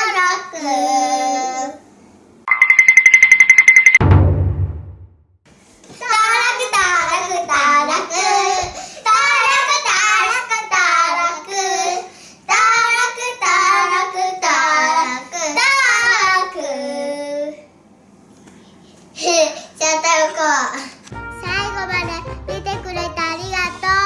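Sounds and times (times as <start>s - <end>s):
young children singing: 0.0s - 1.8s, 6.0s - 17.6s.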